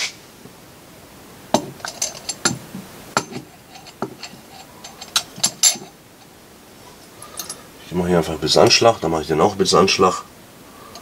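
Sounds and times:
metal parts clinking and knocking: 1.5s - 6.4s, 7.2s - 7.6s.

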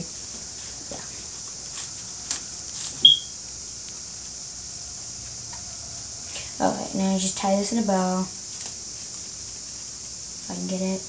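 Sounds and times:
background hiss: 0.0s - 11.0s
paper rustling: 1.4s - 3.1s
brief high squeak: 3.0s - 3.3s.

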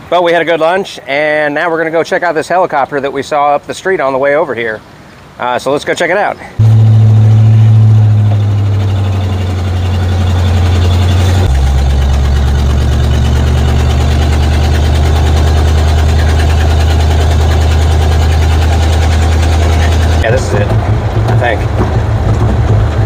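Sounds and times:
truck engine running: 6.6s - 23.0s.

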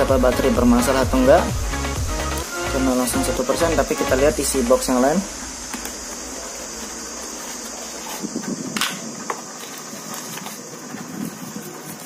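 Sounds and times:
steady hiss: 0.0s - 12.0s
cardboard and plastic rustling: 5.7s - 12.0s.

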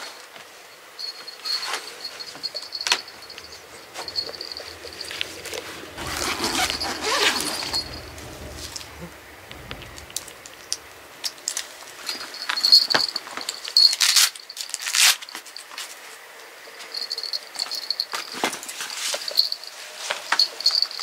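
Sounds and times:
cloth pet carrier rustling: 2.2s - 11.2s.

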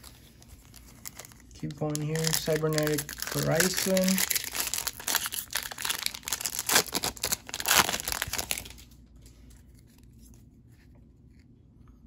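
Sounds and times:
foil wrapper crinkling: 0.0s - 9.5s.

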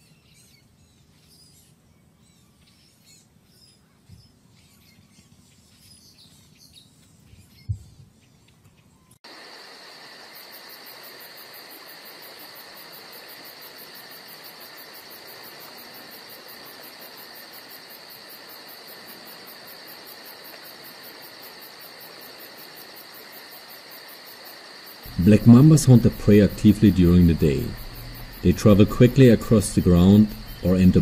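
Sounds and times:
soft hiss: 8.9s - 31.0s
crickets and insects chorus: 9.2s - 31.0s
rapid high pulsing chirp: 25.0s - 31.0s.

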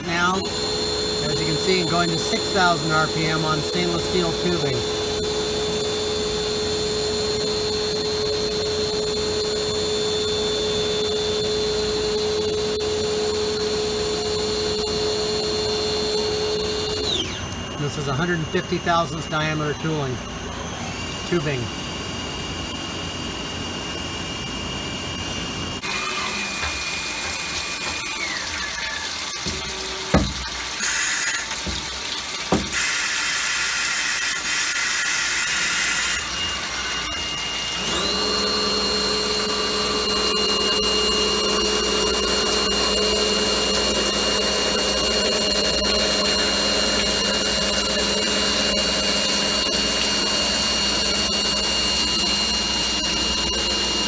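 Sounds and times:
cutting fluid spraying: 0.0s - 5.3s, 25.8s - 40.0s
lathe whine: 0.0s - 54.0s.

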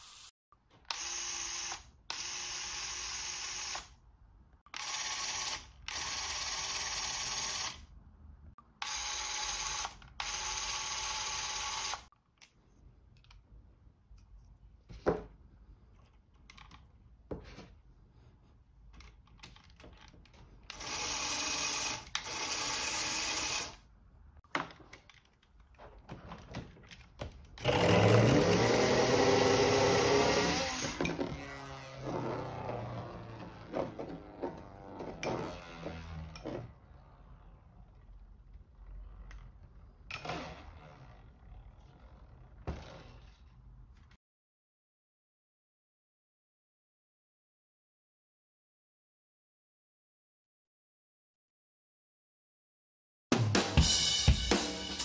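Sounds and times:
plastic parts clicking: 18.9s - 20.4s.

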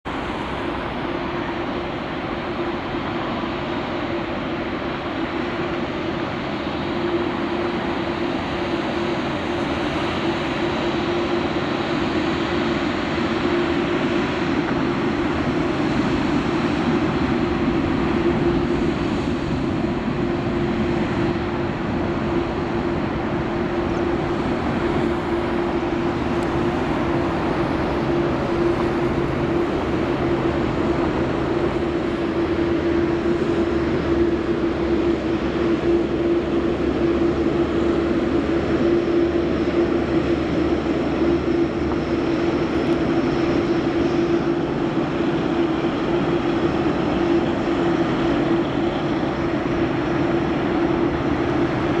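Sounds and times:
jet engines taxiing: 0.0s - 52.0s.

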